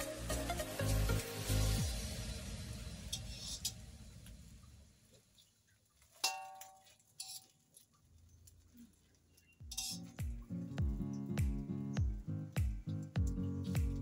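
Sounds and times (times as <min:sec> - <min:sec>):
background music: 0:00.0 - 0:04.2, 0:09.7 - 0:14.0
metal utensil clinking on wok: 0:06.2 - 0:07.5, 0:09.7 - 0:10.2.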